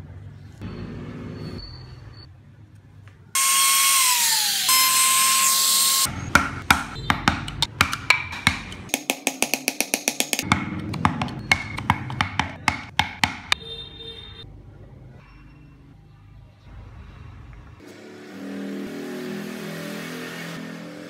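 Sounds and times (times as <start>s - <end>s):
trim router cutting wood: 3.4s - 6.1s
chisel tapping wood: 6.3s - 13.6s.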